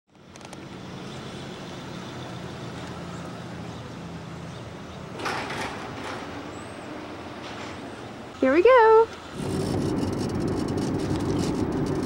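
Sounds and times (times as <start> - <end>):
low motor hum: 9.2 - 12.0
rush of noise: 9.3 - 12.0.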